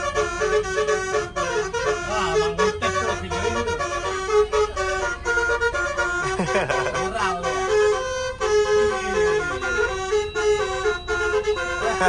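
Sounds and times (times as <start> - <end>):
bus air horns playing tune: 0.0 - 12.0.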